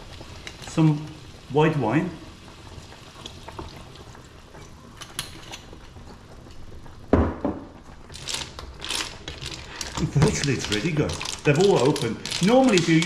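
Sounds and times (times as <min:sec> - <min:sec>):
clams simmering in pan: 0:00.0 - 0:13.0
clam shells clattering and scraping: 0:08.1 - 0:13.0.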